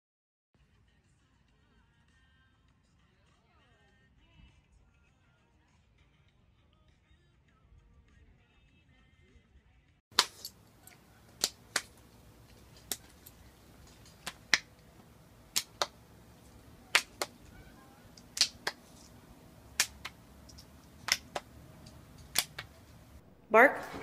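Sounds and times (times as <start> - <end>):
sharp hand claps: 10.2 - 10.5, 11.3 - 13.3, 13.9 - 19.1, 19.7 - 21.6, 22.2 - 22.8.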